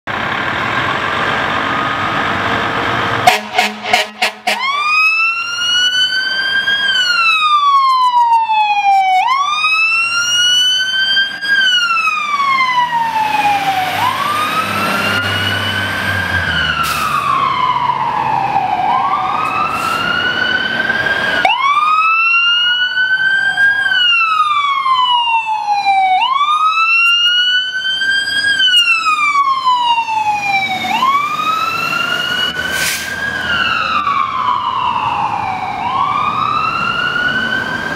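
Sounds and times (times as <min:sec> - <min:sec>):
fire truck sirens wailing: 0:00.1 - 0:37.9
truck engine rumble: 0:00.1 - 0:37.9
short loud horn blasts: 0:03.2 - 0:04.8.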